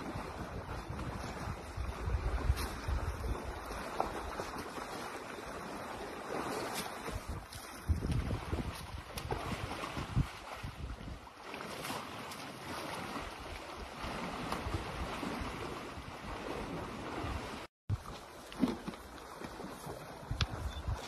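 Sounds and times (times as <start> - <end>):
wind buffeting microphone: 0.0 - 4.6, 7.0 - 11.3, 20.1 - 21.0.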